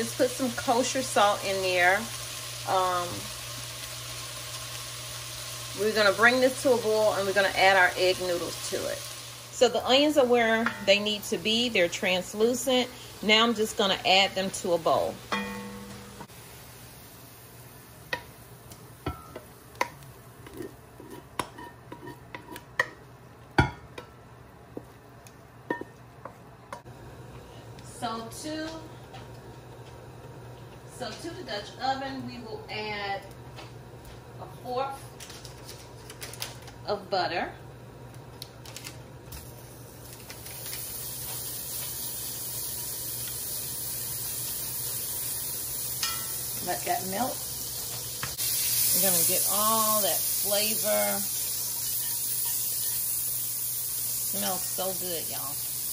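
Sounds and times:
butter sizzling in a pot: 0.0s - 24.1s, 25.7s - 55.9s
spoon grating scrape: 20.5s - 22.7s, 51.7s - 53.1s.

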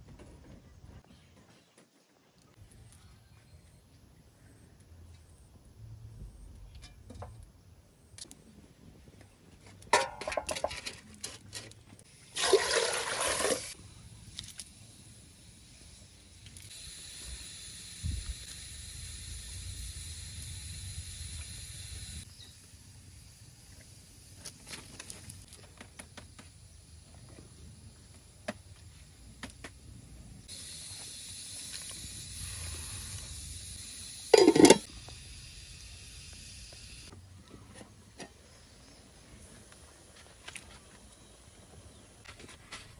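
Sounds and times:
pot of water hissing: 12.0s - 25.5s, 26.4s - 37.1s
water poured into metal pot: 12.2s - 13.8s, 33.6s - 34.9s
cookware clattering: 34.4s - 34.8s.

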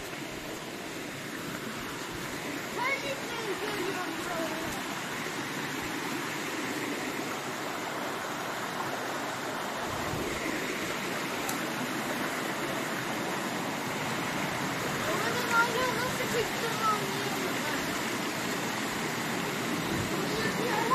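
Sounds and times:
waterfall rushing: 0.0s - 20.9s.

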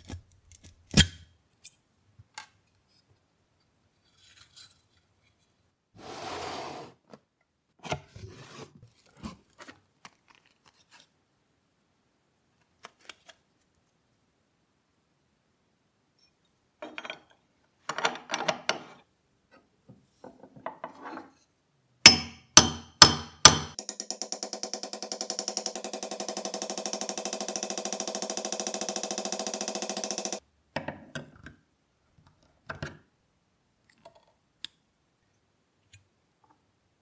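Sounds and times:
hammer striking pin punch: 22.1s - 30.4s.

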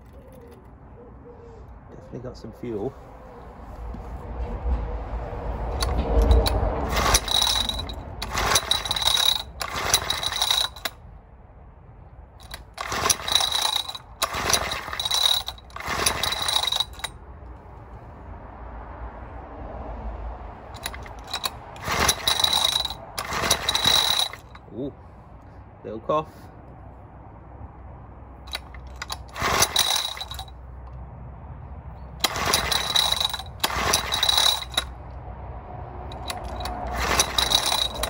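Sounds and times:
recoil starter ratchet rasp: 5.8s - 11.0s, 12.4s - 17.1s, 20.8s - 24.6s, 28.5s - 30.6s, 32.2s - 34.9s, 36.1s - 38.0s.

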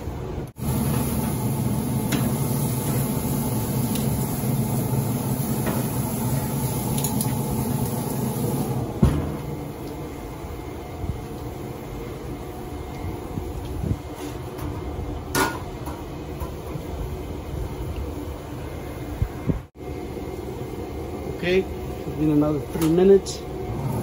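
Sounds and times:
grill fire and fan rushing: 0.0s - 24.0s
grill lid shutting with thud: 9.0s - 9.6s, 14.6s - 15.7s.

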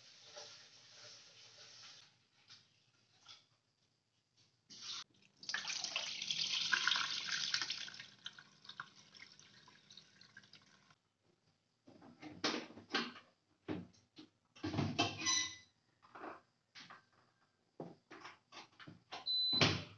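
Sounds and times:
water splashing into steel sink: 4.8s - 11.0s.

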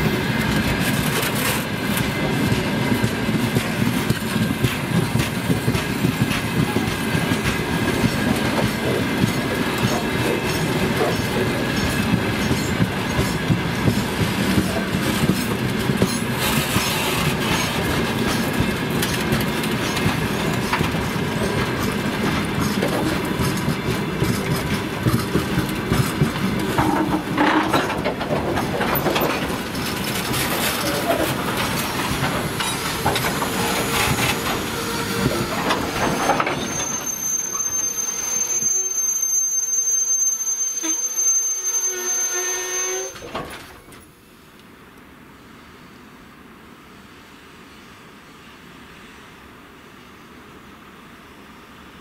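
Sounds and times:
wheels clacking over rail joints: 0.0s - 37.6s
freight train rumbling past: 0.0s - 39.5s.

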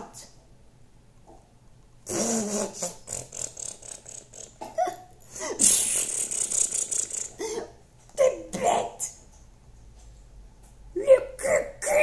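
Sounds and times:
person making silly mouth noises: 2.0s - 7.8s.

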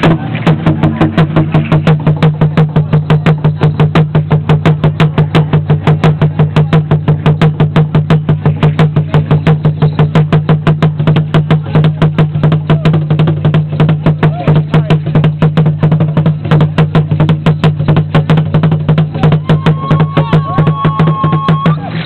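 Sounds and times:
wooden drum beaten with sticks: 0.0s - 21.9s.

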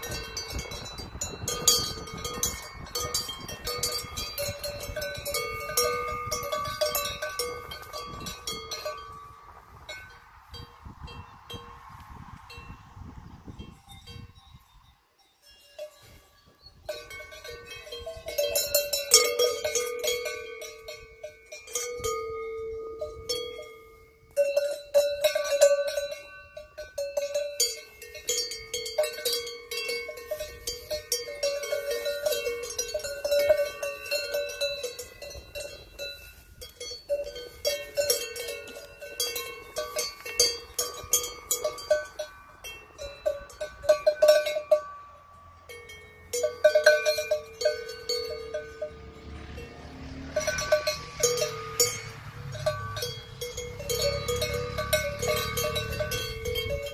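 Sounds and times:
cowbells clanking and ringing: 0.0s - 11.8s, 13.6s - 56.9s.

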